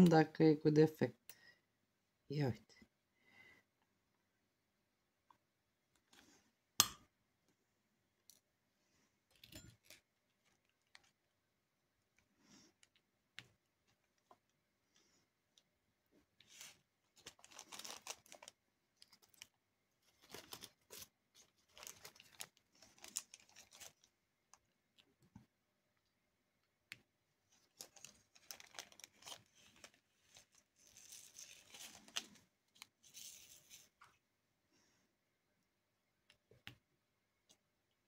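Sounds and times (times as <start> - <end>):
scratchy rustling with small clicks: 27.5 - 34.2.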